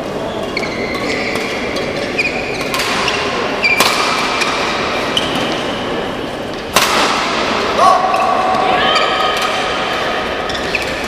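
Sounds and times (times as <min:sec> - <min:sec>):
shoes squeaking on floor: 0:00.3 - 0:05.8, 0:10.4 - 0:11.0
racket hitting shuttlecock: 0:01.0 - 0:05.7, 0:06.5 - 0:08.2.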